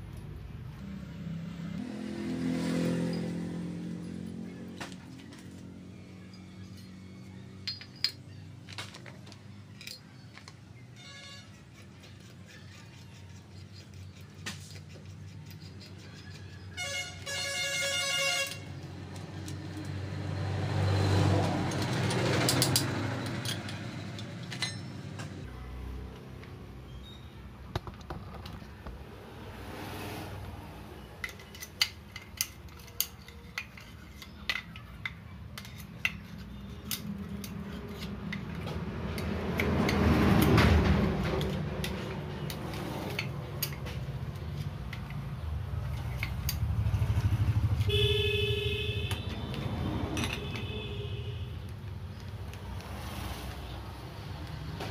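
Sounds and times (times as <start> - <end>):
vehicles passing: 0.0 - 54.9
vehicle horn toot: 11.0 - 11.6, 16.8 - 18.7, 47.9 - 49.5, 50.3 - 51.6.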